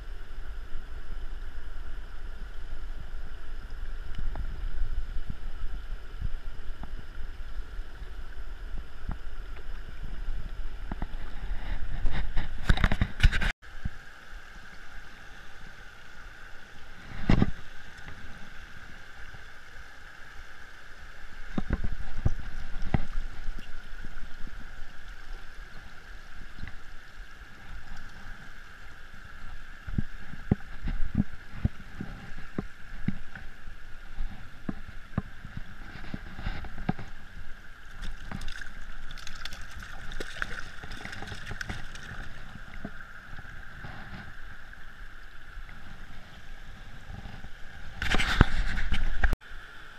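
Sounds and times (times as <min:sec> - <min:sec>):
stony river rushing: 0:00.0 - 0:49.9.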